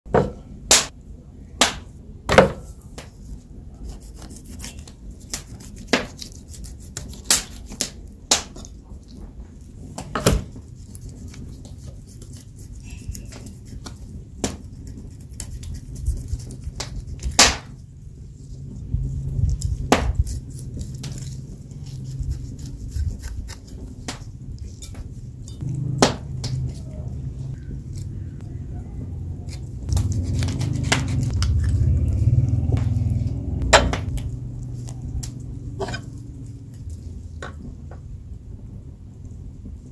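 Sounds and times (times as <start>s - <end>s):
low rumble: 17.8s - 22.6s, 25.4s - 39.9s.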